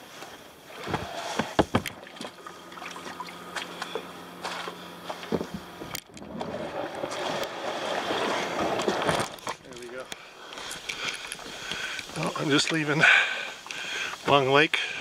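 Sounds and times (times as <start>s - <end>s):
water sloshing and splashing: 0.6s - 14.4s
paddle and hull knocking: 0.8s - 4.1s, 5.1s - 10.0s
small scattered clicks: 9.0s - 12.8s.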